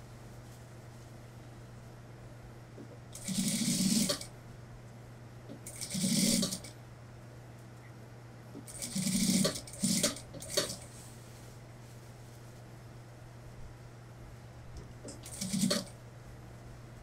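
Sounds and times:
steady low hum: 0.0s - 17.0s
sewing machine stitching: 3.2s - 4.3s, 5.5s - 6.7s, 8.6s - 10.9s, 15.0s - 16.0s.

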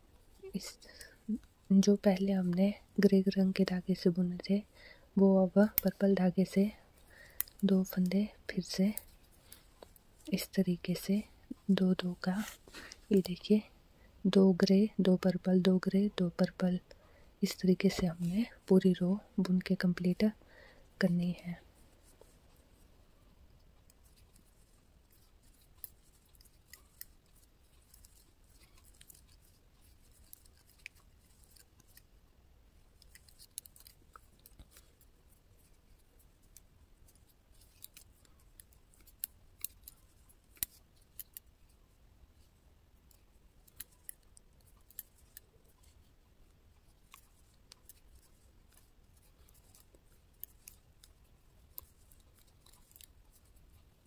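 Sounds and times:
metal knitting needles clicking: 5.5s - 6.6s, 23.6s - 32.2s, 32.9s - 41.7s, 43.0s - 54.0s.

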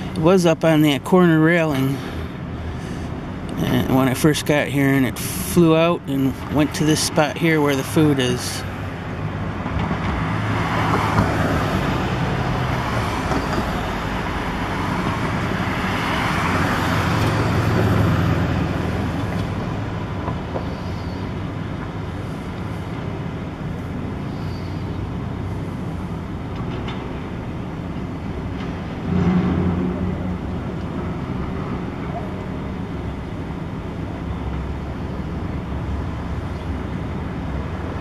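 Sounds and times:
passing vehicles: 0.0s - 38.0s
loud engine: 28.3s - 33.1s.

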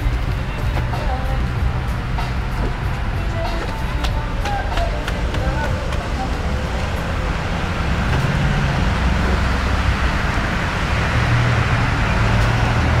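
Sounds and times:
car engine rumble: 0.0s - 13.0s
deep bass from car stereo: 0.0s - 13.0s
street traffic noise: 0.0s - 13.0s.

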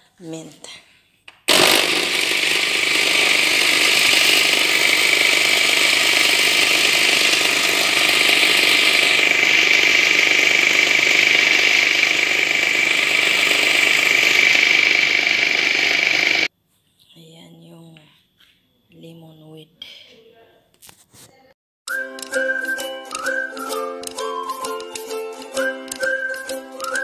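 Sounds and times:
blender motor running: 1.5s - 16.5s
high whine: 1.5s - 16.5s.

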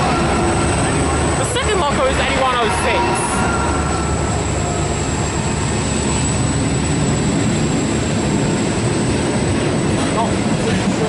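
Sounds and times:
thin high whine: 0.0s - 8.3s
locomotive passing: 0.0s - 11.0s
train wheels rumbling on rails: 0.0s - 11.0s.

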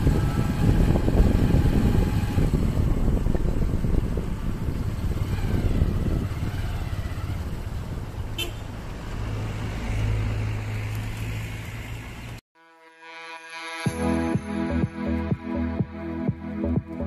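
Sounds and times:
wind and road rumble: 0.0s - 12.4s
background music: 13.0s - 17.0s.

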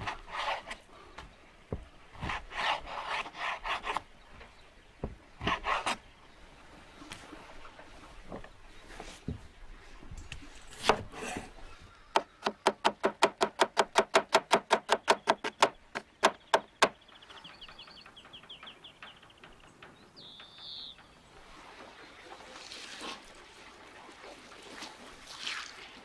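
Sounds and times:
faint bird chirps: 16.3s - 21.4s.

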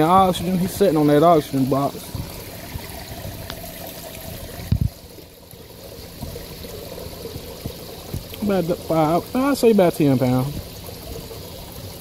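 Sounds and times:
water pouring into tank: 0.0s - 12.0s.

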